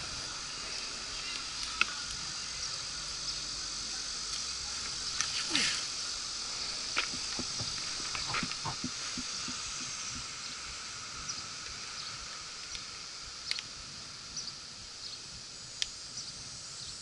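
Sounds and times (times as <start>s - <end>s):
steady high hiss: 0.0s - 17.0s
footsteps on a trail: 6.5s - 10.3s.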